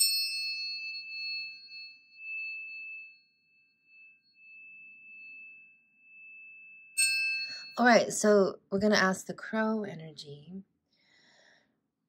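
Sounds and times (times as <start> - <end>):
tuning fork ringing: 0.0 - 8.1.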